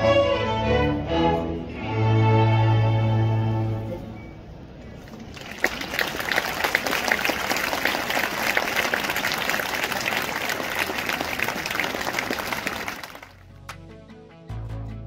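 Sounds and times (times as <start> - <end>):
audience applauding: 5.1 - 13.8.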